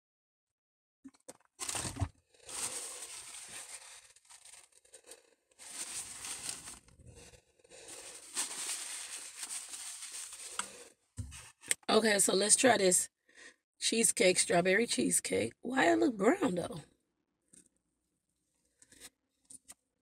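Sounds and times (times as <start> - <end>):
packaging torn open and crinkled: 1.6 - 7.0, 7.9 - 10.8.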